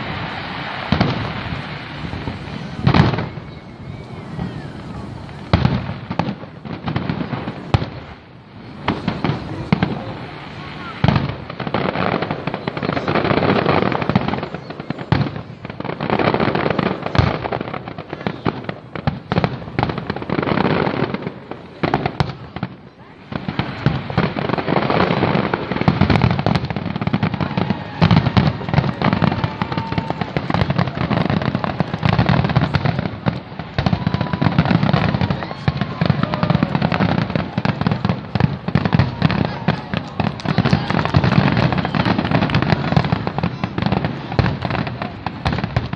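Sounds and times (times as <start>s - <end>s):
fireworks bangs and crackles: 0.0s - 45.9s.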